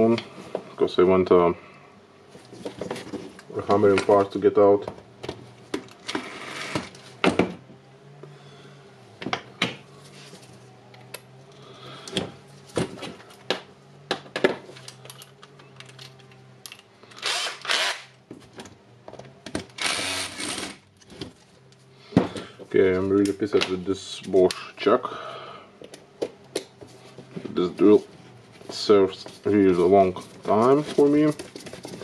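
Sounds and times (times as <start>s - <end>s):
power drill bursts: 17.2s - 18.1s, 19.8s - 20.8s.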